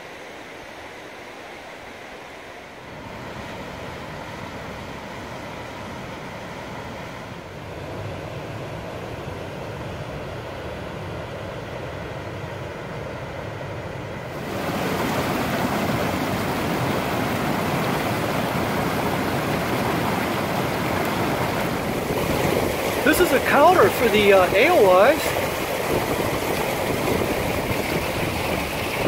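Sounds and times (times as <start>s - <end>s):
river rushing over a dam: 14.3s - 29.0s
water cascading down steps: 14.3s - 29.0s.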